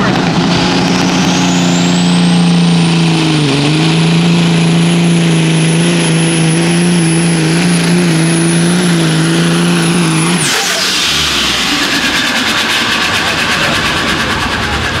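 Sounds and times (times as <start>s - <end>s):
diesel truck engine at full load: 0.0s - 15.0s
high turbo whistle: 0.4s - 2.9s, 6.0s - 12.9s.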